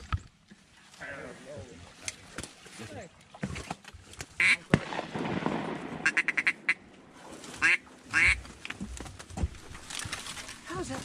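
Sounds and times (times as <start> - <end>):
duck quacking: 4.4 - 4.6, 6.0 - 6.8, 7.6 - 8.4.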